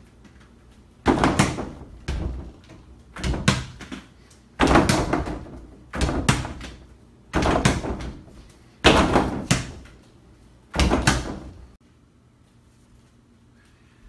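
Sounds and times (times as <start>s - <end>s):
ball banging backboard and rim: 1.0s - 4.0s, 4.6s - 9.9s, 10.7s - 11.6s.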